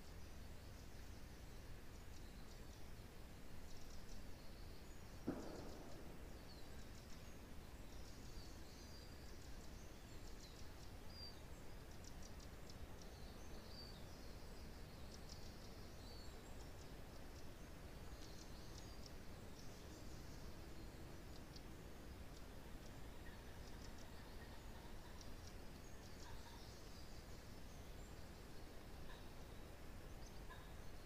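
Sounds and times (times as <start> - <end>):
faint low wind: 0.0 - 31.0
small birds chirping: 0.0 - 31.0
short knock: 5.3 - 6.5.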